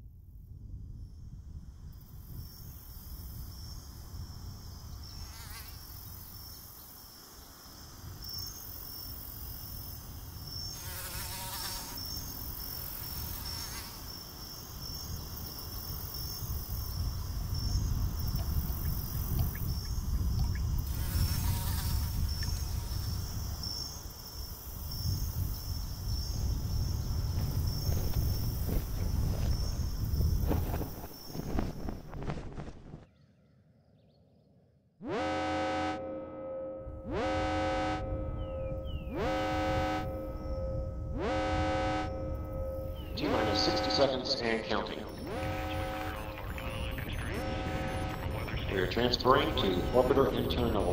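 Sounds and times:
insects trilling: 1.0s - 32.4s, 37.2s - 50.9s
low rumble: 36.6s - 50.9s.

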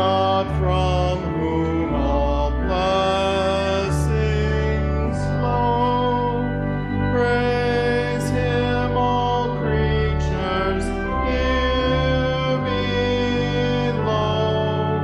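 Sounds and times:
person singing: 0.0s - 15.0s
slow church organ chords: 0.0s - 15.0s.

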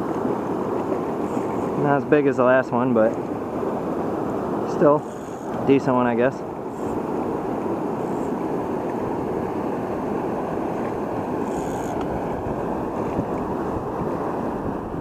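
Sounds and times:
river water rushing: 0.0s - 15.0s
wind buffeting microphone: 6.6s - 15.0s.

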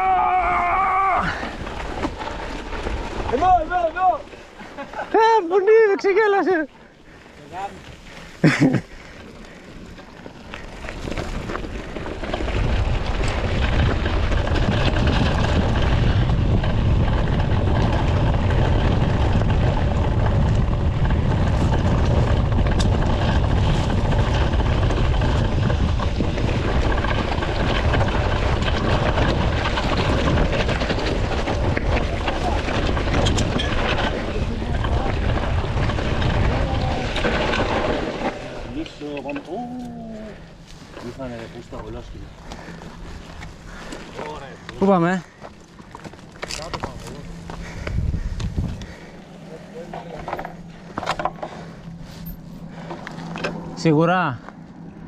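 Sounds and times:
tyres crunching on stones: 0.0s - 55.0s
wind buffeting microphone: 8.0s - 53.8s.

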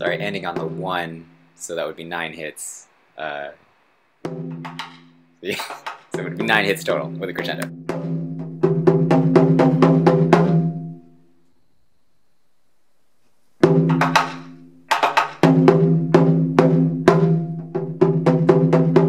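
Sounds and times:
taiko drum hits: 4.3s - 5.2s, 13.6s - 19.0s.

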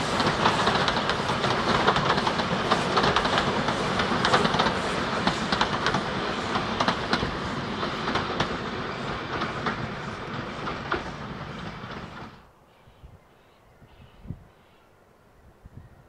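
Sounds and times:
wheels clicking over rail joints: 0.0s - 12.4s
train carriages rolling on track: 0.0s - 12.5s.

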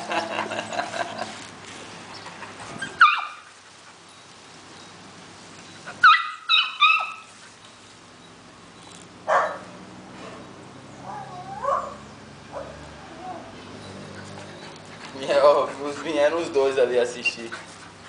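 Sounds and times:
dog barking: 9.3s - 9.7s, 11.1s - 12.8s.

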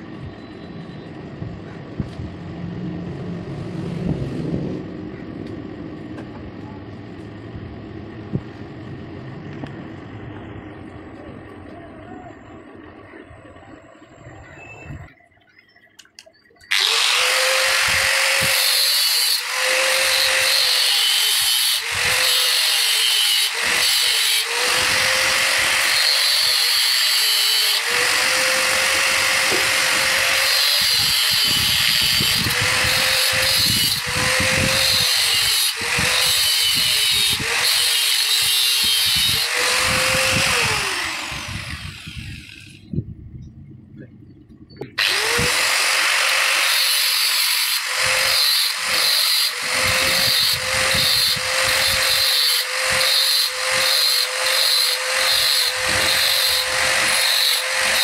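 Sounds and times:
power tool cutting steel wire: 16.6s - 42.9s, 45.0s - 58.0s.

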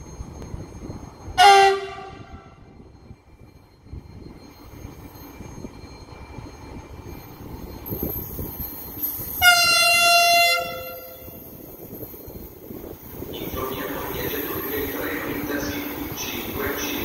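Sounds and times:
train approaching rumble: 0.0s - 17.0s
train horn blast: 1.4s - 2.5s, 9.4s - 11.2s.

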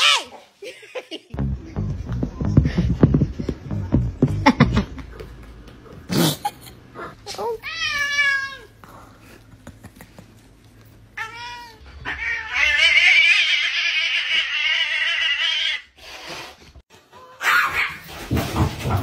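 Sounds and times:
cat yowling: 11.2s - 15.9s.

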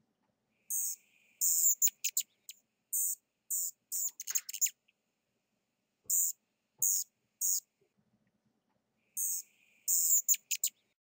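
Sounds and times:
hummingbird squeaky chips: 3.0s - 4.8s.

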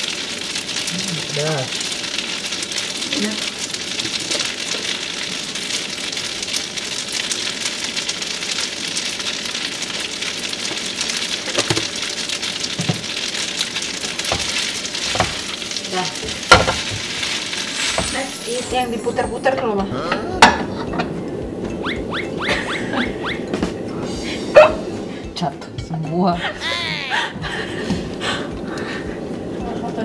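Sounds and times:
food sizzling in oil: 0.0s - 27.4s
metal tongs knocking on pan: 14.3s - 15.4s, 16.2s - 17.0s.

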